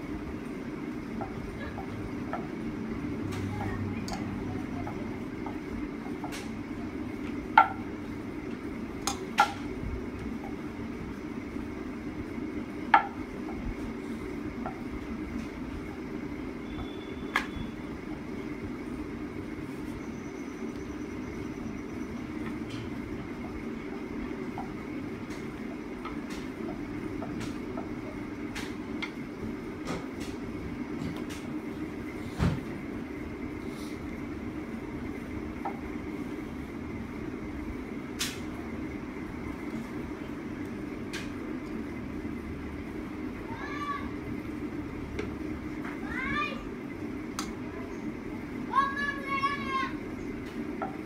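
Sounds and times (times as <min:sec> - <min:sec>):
low rumbling hum: 0:00.0 - 0:51.0
faint high whine: 0:15.7 - 0:25.0.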